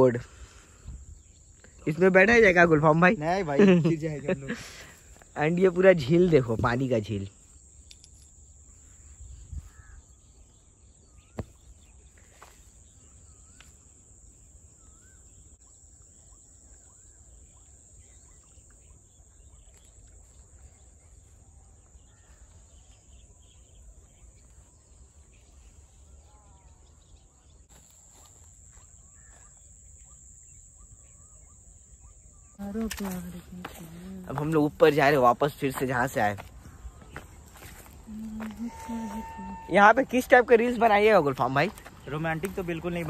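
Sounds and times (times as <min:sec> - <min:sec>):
insects trilling: 0:00.0 - 0:43.0
faint bird calls: 0:07.6 - 0:35.3, 0:36.3 - 0:43.0.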